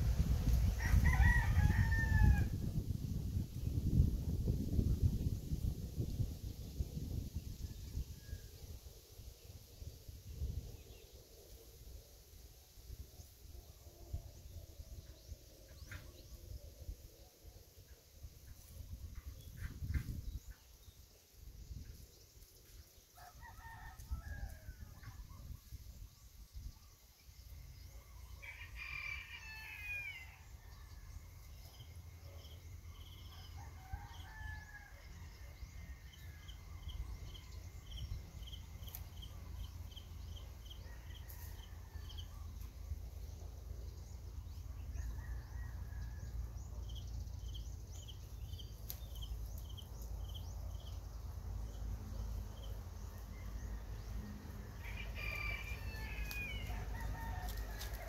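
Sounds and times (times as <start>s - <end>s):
rooster crowing: 0.7s - 2.6s, 23.2s - 25.0s, 28.4s - 30.5s, 33.2s - 35.4s, 53.1s - 58.0s.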